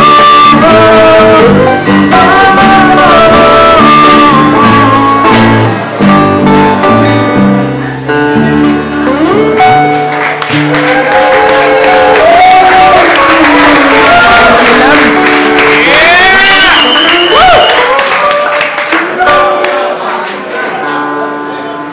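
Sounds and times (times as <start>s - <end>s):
man singing: 0.0s - 6.1s, 11.4s - 17.7s
strummed acoustic guitars: 0.0s - 16.1s
acoustic bass guitar: 0.0s - 16.4s.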